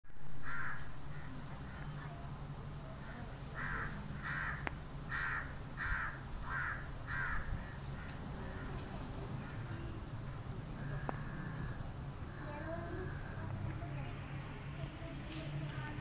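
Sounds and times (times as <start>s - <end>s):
crow cawing: 0.4s - 1.3s, 3.5s - 8.8s, 10.8s - 13.4s.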